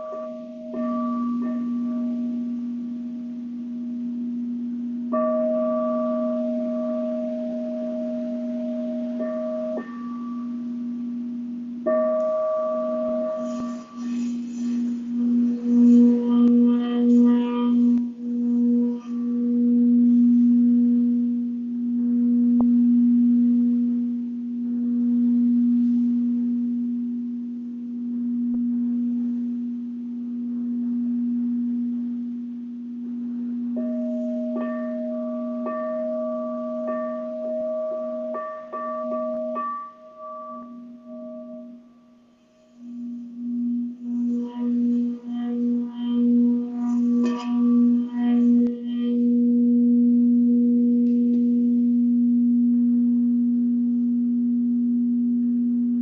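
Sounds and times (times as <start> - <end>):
higher ringing tone: 0.0 - 32.4, 33.5 - 56.0
singing bowl low hum: 0.0 - 56.0.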